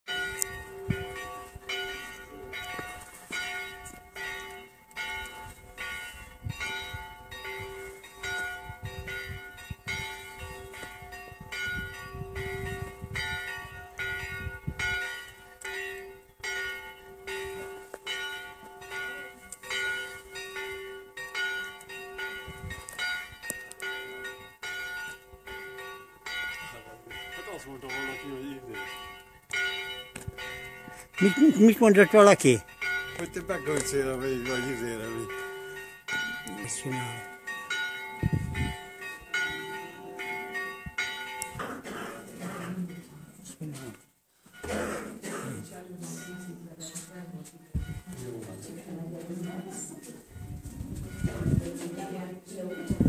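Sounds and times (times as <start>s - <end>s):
church bell ringing: 0.1s - 41.9s, 42.5s - 53.0s.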